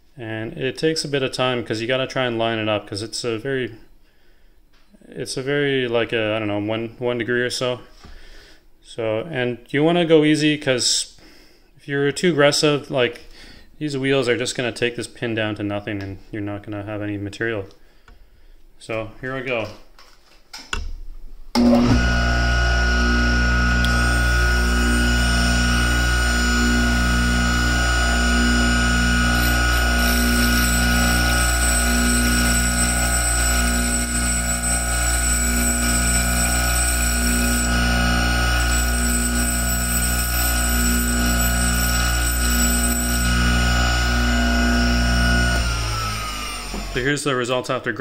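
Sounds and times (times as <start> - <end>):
motor hum with high whine: 21.6 - 47.0.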